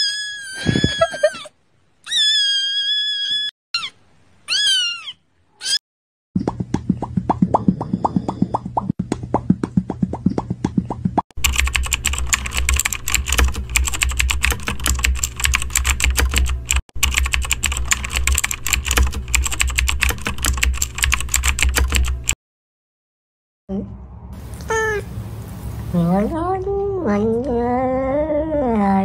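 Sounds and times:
mouth pops: 0:06.4 - 0:11.2
fast typing on keyboard: 0:11.4 - 0:22.4.

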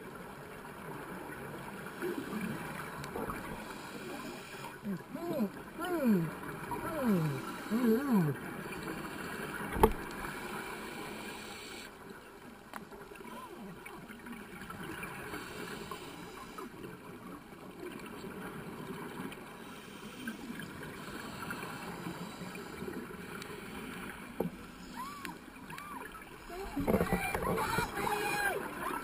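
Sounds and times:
faint gurgles chirps and ticks: 0:00.0 - 0:29.0
underwater rushing hiss: 0:03.4 - 0:05.3, 0:06.8 - 0:08.4, 0:09.0 - 0:11.9, 0:15.2 - 0:16.7.

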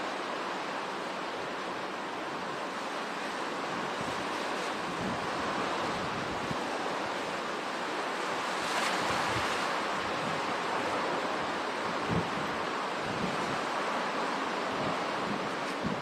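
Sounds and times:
hurricane wind: 0:00.0 - 0:16.0.

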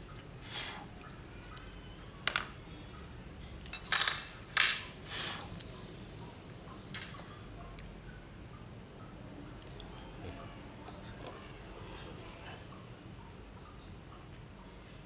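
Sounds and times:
metal part clattering on tile floor: 0:03.7 - 0:04.9, 0:06.9 - 0:07.3.

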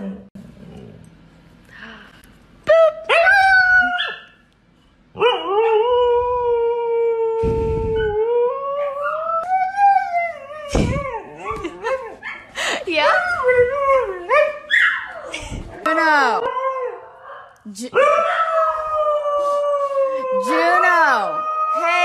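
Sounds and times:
thump: 0:10.7 - 0:11.0.

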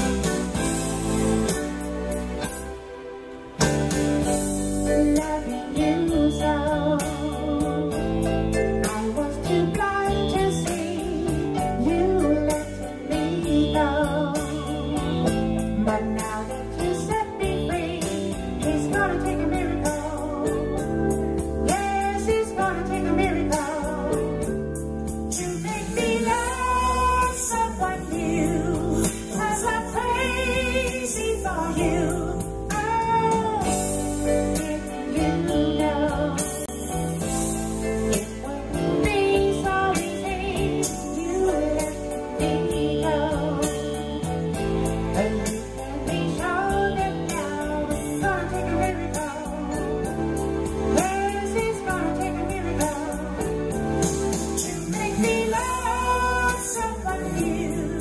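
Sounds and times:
backing music with keyboards: 0:00.0 - 0:58.0
man singing: 0:54.6 - 0:58.0.

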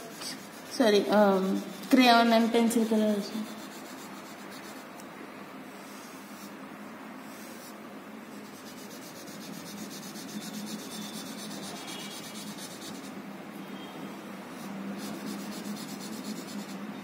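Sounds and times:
marker scribbling on paper: 0:00.0 - 0:02.1, 0:02.7 - 0:04.9, 0:08.4 - 0:13.2, 0:14.6 - 0:16.8.

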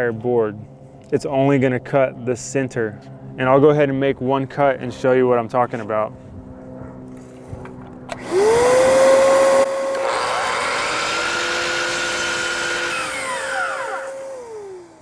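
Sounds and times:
miter saw motor whine: 0:08.1 - 0:15.0
saw blade cutting board: 0:08.2 - 0:15.0.

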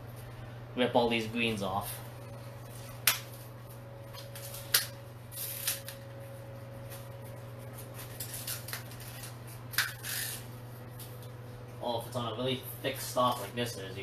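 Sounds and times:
leaves snapping: 0:02.7 - 0:06.1, 0:07.7 - 0:10.1
small cracks: 0:02.7 - 0:06.1, 0:06.8 - 0:11.4.

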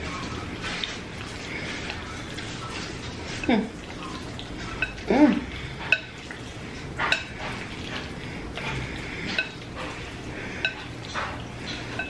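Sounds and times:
chopsticks stirring wet noodles: 0:00.0 - 0:12.0
chopsticks clinking on ceramic bowl: 0:04.7 - 0:05.1.

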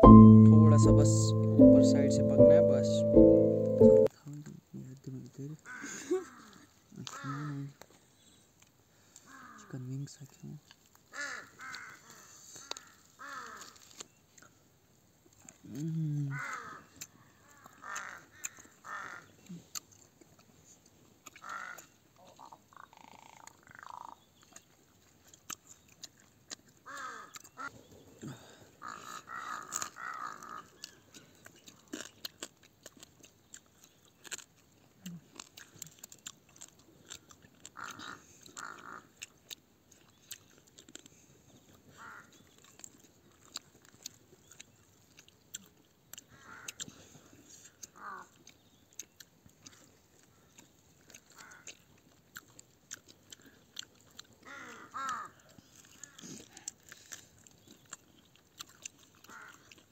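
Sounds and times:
crows cawing: 0:17.8 - 0:19.3, 0:21.4 - 0:21.8, 0:26.9 - 0:27.3, 0:28.8 - 0:30.7, 0:54.4 - 0:55.4, 0:59.3 - 0:59.6.

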